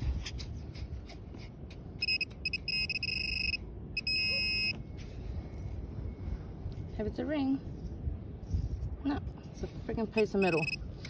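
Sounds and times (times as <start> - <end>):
metal detector pinpointer beeping: 2.0 - 4.8, 10.2 - 10.8.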